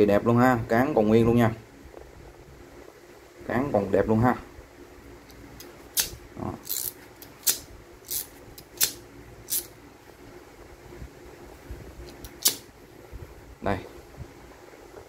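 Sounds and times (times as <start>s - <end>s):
crimping tool clicking: 5.3s - 9.7s, 12.1s - 12.6s.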